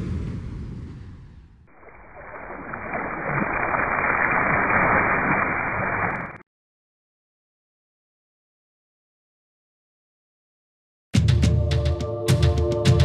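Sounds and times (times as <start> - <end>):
muffled rushing water: 1.7 - 6.4.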